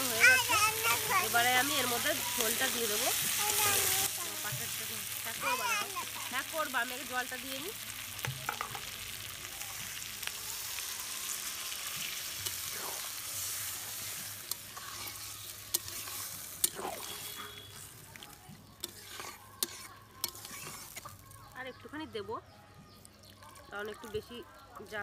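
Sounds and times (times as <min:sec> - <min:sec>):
water sizzling in hot pan: 0:00.0 - 0:21.6
spatula stirring: 0:10.7 - 0:21.6
spatula clicking on pan: 0:18.8 - 0:20.8.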